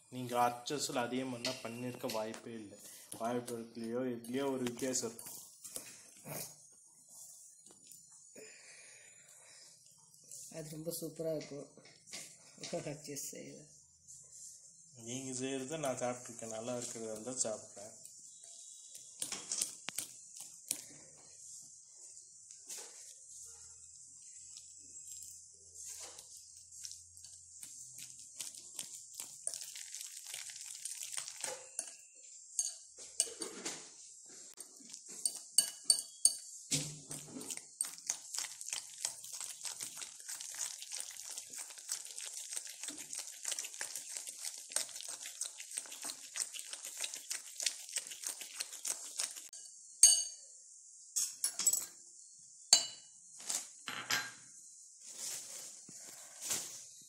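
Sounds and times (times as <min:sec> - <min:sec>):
utensil stirring batter in glass bowl: 0:02.9 - 0:08.1, 0:14.1 - 0:33.6, 0:34.5 - 0:50.3
metal clinking on glass: 0:31.6 - 0:33.5, 0:35.2 - 0:36.6, 0:49.6 - 0:50.4.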